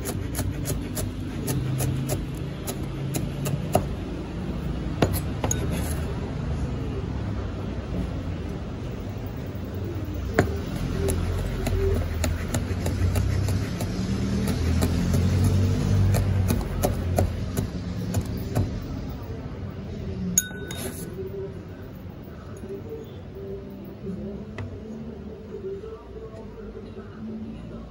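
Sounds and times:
ringing clink: 20.4s - 21.1s.

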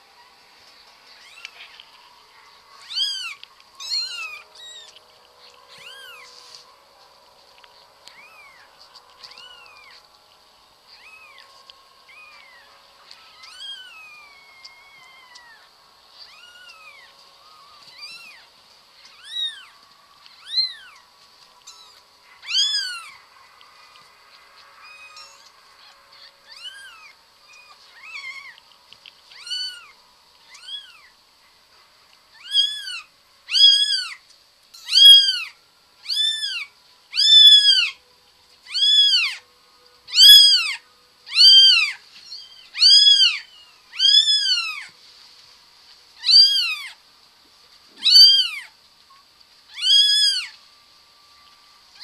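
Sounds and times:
kitten mewing: 48.0s - 48.7s.

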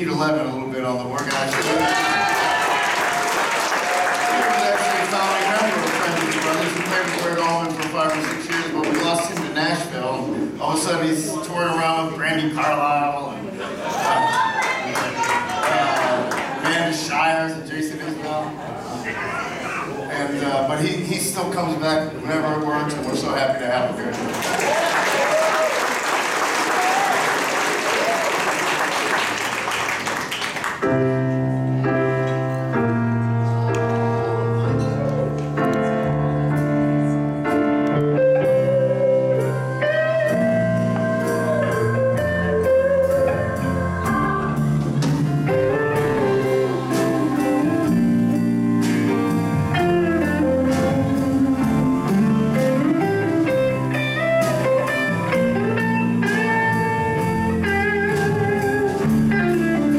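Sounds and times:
audience applause: 1.2s - 9.6s, 13.8s - 16.8s, 24.1s - 30.8s
electric guitar lead: 30.8s - 59.9s
organ chords: 30.8s - 59.9s.

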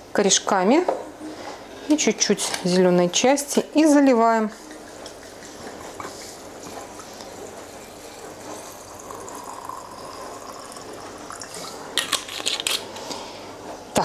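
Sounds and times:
liquid pouring into a jar: 5.9s - 12.4s.

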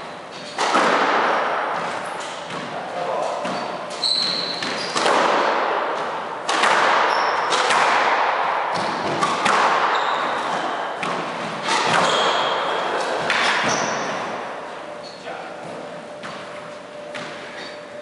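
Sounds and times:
squash ball hitting racquets and walls: 0.0s - 15.0s, 15.6s - 17.8s
shoes squeaking on wooden floor: 3.4s - 5.1s, 9.8s - 12.7s.

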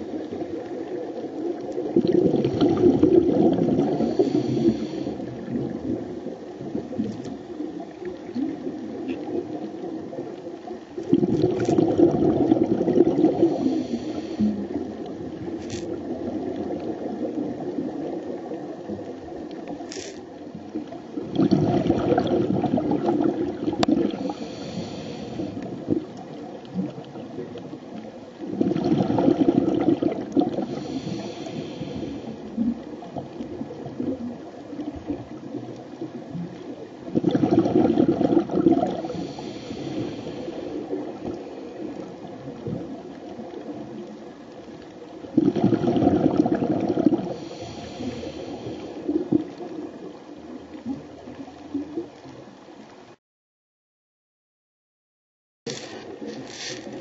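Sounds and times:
exhaled bubbles rumbling underwater: 0.0s - 53.2s
scuba regulator hiss: 4.0s - 5.3s, 13.4s - 14.7s, 24.2s - 25.6s, 30.7s - 32.4s, 39.1s - 40.9s, 47.4s - 49.1s, 55.7s - 57.0s.

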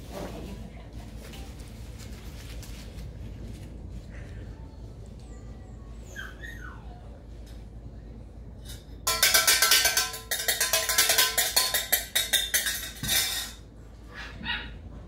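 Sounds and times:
saucepan banged with metal utensil: 9.0s - 13.6s.

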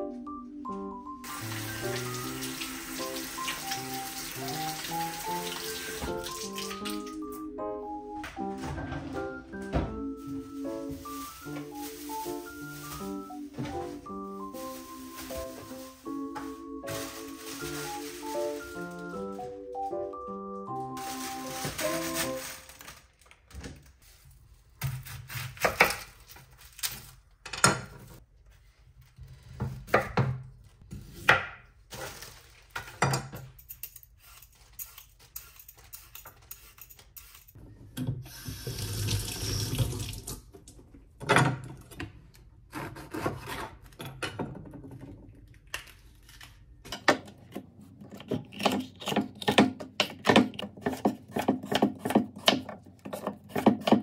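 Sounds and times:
produce knocking and clattering: 46.9s - 54.0s
knife chopping on wooden board: 48.6s - 54.0s.

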